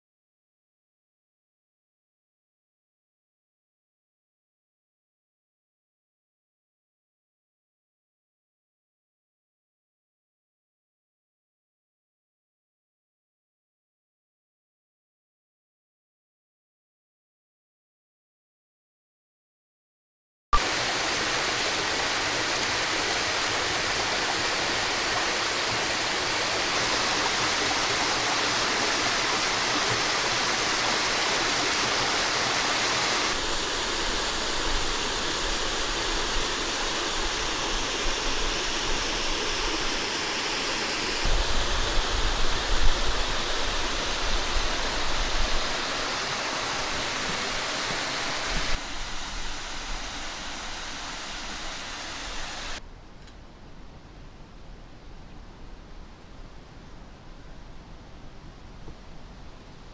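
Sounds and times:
water rushing down cascade: 20.6 - 52.8.

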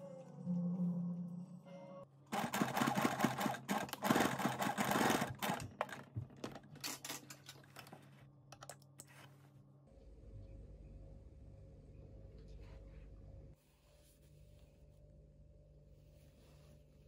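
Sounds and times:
sewing machine stitching: 2.3 - 6.6.

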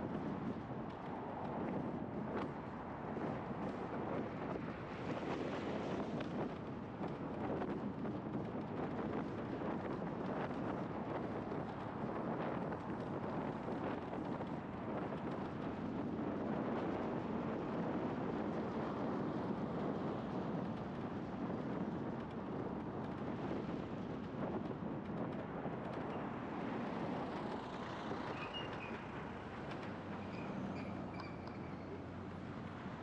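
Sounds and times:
wind rush over microphone: 0.0 - 33.0
scooter tyre and road noise: 8.5 - 33.0.

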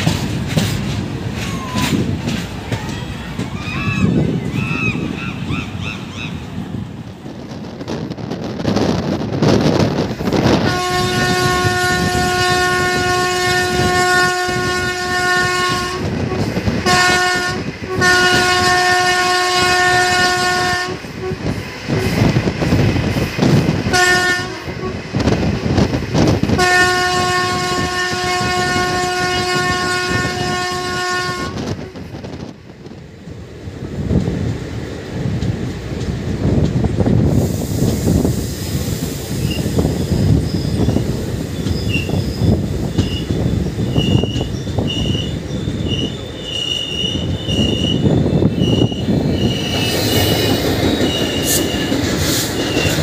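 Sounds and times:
train rumbling on track: 0.0 - 53.0
train horn blasts: 10.4 - 22.3, 23.9 - 25.4, 26.4 - 32.0, 43.9 - 52.0.

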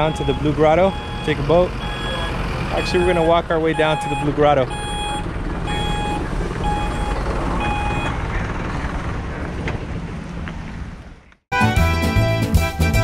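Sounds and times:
reversing alarm beeping: 0.0 - 8.2.

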